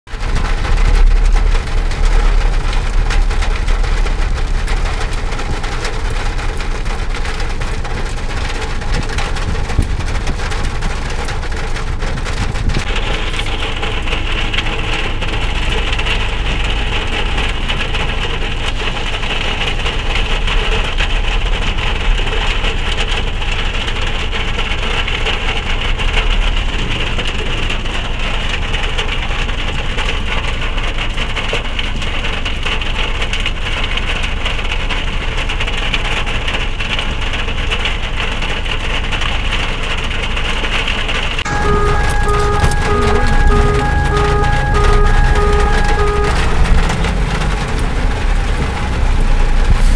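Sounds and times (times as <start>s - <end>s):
low rumble: 0.1s - 18.8s, 41.4s - 49.9s
heavy rain on car roof: 0.1s - 49.9s.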